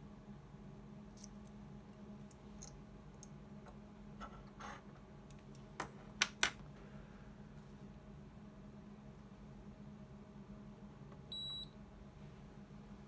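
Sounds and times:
faint steady hum: 0:00.0 - 0:13.0
small clicks and scrape: 0:01.2 - 0:01.6.

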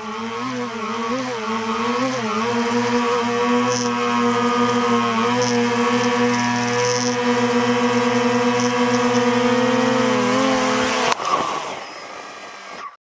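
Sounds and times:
drone propellers whirring: 0:00.0 - 0:13.0.

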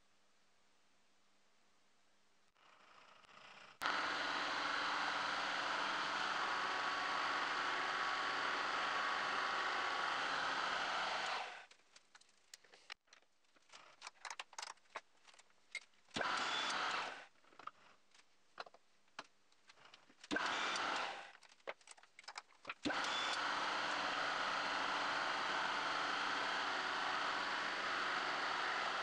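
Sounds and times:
milling machine cutting metal: 0:03.8 - 0:11.6, 0:16.2 - 0:17.1, 0:20.3 - 0:21.2, 0:22.8 - 0:29.0
tools clicking and tapping: 0:11.7 - 0:16.5, 0:17.5 - 0:23.4.

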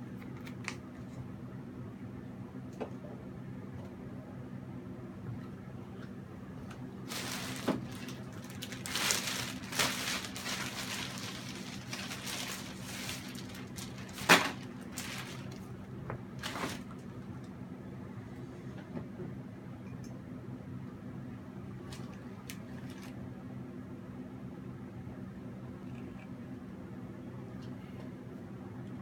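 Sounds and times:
low electrical hum: 0:00.0 - 0:29.0
rustling and scraping of materials: 0:07.0 - 0:15.7, 0:16.4 - 0:17.2, 0:21.8 - 0:23.2.

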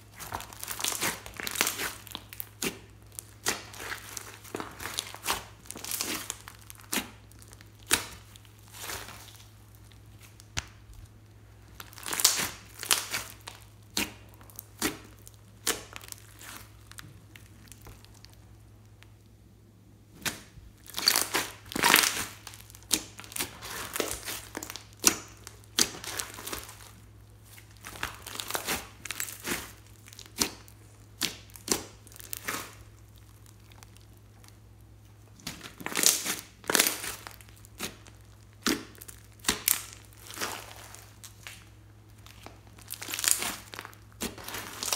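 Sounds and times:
slime clicking and popping: 0:20.2 - 0:26.8, 0:27.8 - 0:34.6, 0:35.4 - 0:44.9.

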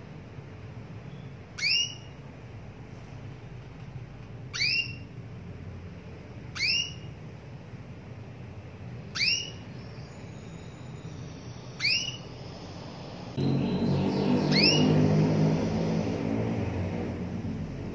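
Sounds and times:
canary calling: 0:01.1 - 0:02.2, 0:04.5 - 0:05.2, 0:06.4 - 0:07.2, 0:09.0 - 0:16.2.

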